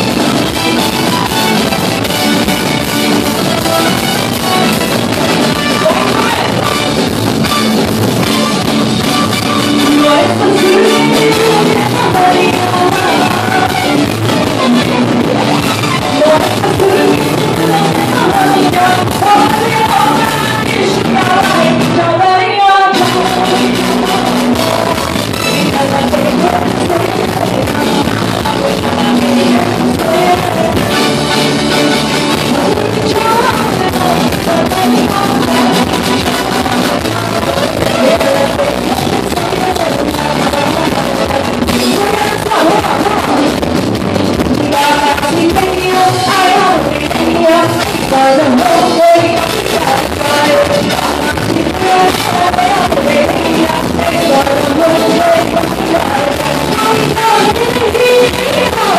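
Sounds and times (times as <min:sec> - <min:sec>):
drums: 0:00.0 - 0:58.9
keyboards: 0:00.0 - 0:58.9
woman singing into a microphone: 0:00.0 - 0:58.9.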